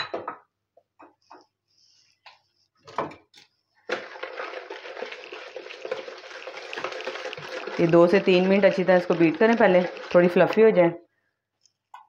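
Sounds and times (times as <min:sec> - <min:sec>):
whisk scraping in plastic bowl: 0:03.9 - 0:10.6.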